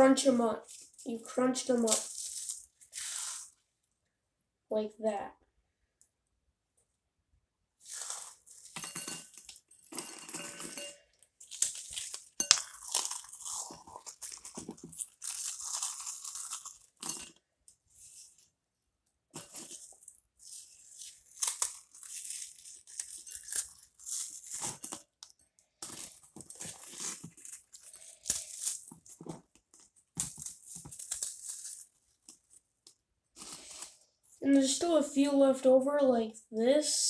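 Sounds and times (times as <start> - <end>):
crackers being crushed by hand: 1.7 - 3.5, 7.8 - 17.5, 19.3 - 34.0.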